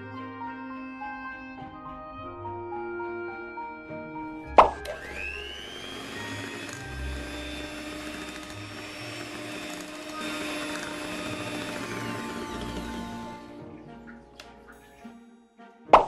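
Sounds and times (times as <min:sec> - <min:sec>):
electric hand mixer whirring: 0:04.6 - 0:13.8.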